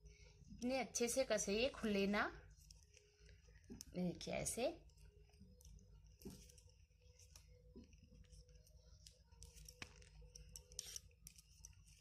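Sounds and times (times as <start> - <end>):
cord rustling and clicking: 2.5 - 4.0, 4.8 - 12.0.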